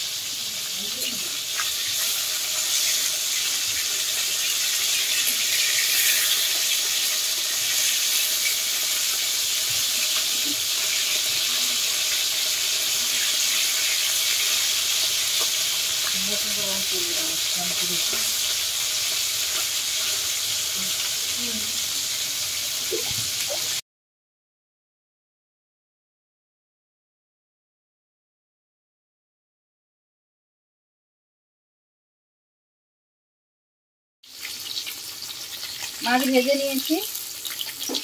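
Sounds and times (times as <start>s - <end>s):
fish sizzling in hot oil: 0.0s - 23.8s, 34.2s - 38.0s.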